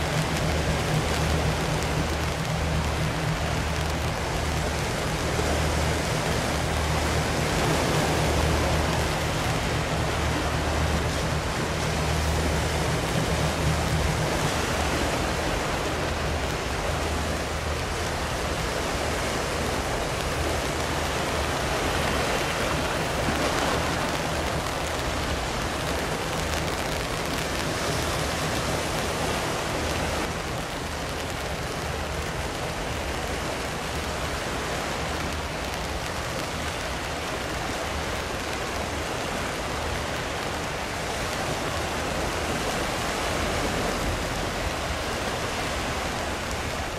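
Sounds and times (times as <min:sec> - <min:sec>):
light rain over the sea: 0:00.0 - 0:46.9
ship engine drone: 0:00.0 - 0:46.9.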